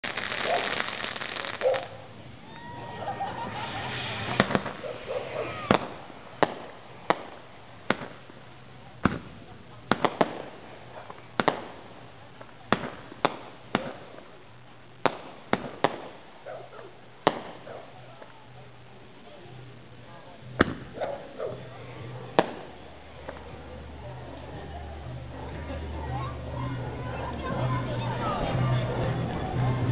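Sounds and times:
fireworks bangs: 0.0s - 18.7s, 20.4s - 24.6s
crowd voices: 0.0s - 29.9s.

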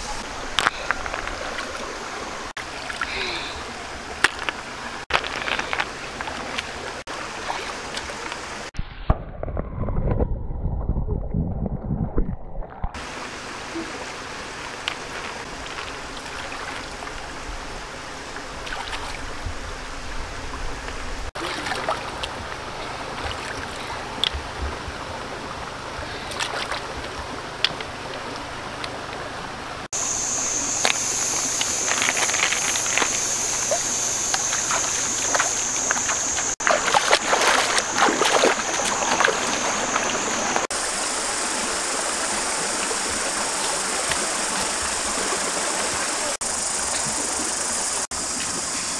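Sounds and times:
stream running over rocks: 0.0s - 8.8s, 12.9s - 48.9s
splashes in water: 12.8s - 17.4s, 18.4s - 19.4s, 21.3s - 24.9s, 26.0s - 29.2s, 29.9s - 48.9s
steady high hiss: 30.0s - 48.9s.

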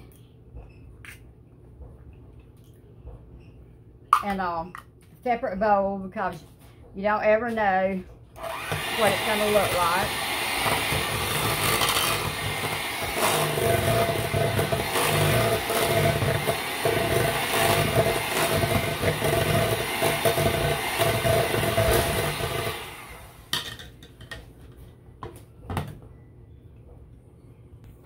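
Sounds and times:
electric hand mixer whipping: 8.4s - 23.5s.

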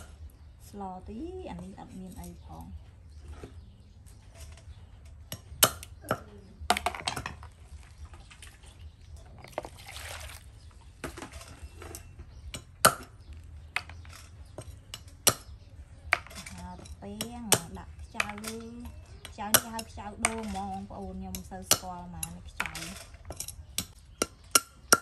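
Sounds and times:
water poured into plastic basin: 9.4s - 10.7s.

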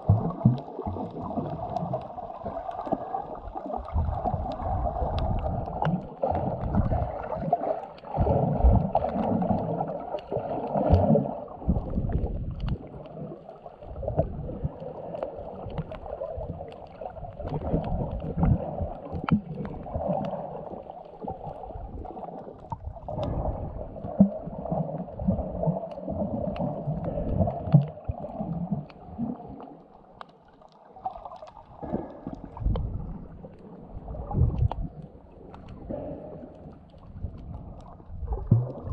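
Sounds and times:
water swishing underwater: 0.0s - 38.9s
faint clicks: 29.9s - 33.7s.

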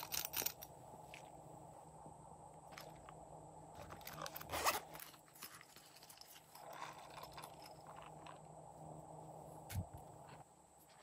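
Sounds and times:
zipper being pulled open: 3.8s - 8.0s.

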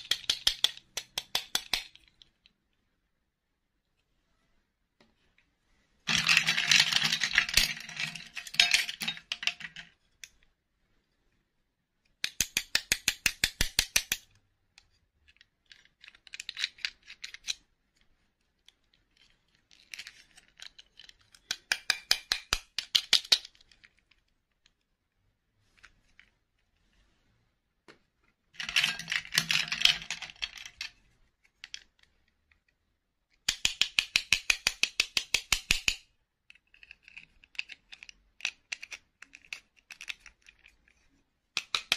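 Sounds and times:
plastic dolls rattling and clicking: 0.0s - 2.6s, 6.1s - 10.4s, 12.2s - 24.8s, 28.5s - 41.9s.

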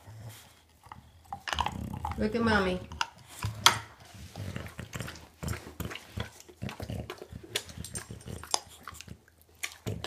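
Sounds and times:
dog licking and gnawing: 0.0s - 10.0s.

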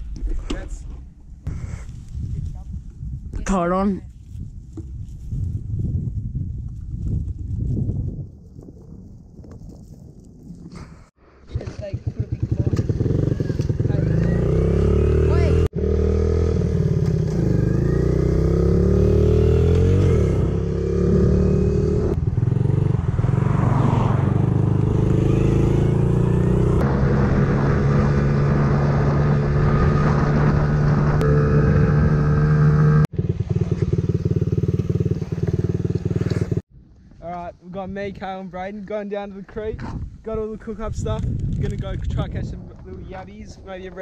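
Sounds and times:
dirt bike engine revving: 11.6s - 36.6s.

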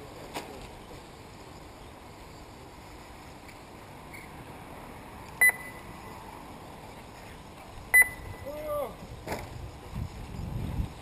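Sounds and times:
background hiss: 0.0s - 11.0s
electronic beep: 5.4s - 5.9s, 7.9s - 8.4s.

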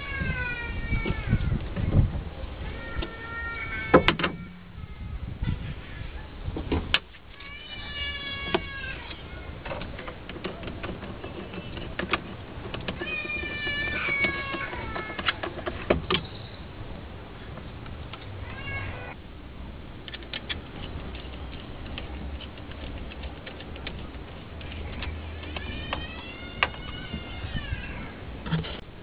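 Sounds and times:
tools clicking and knocking: 9.6s - 16.3s.

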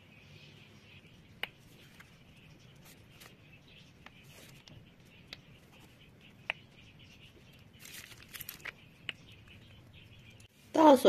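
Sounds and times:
piping bag crinkly rustle: 7.5s - 9.4s.

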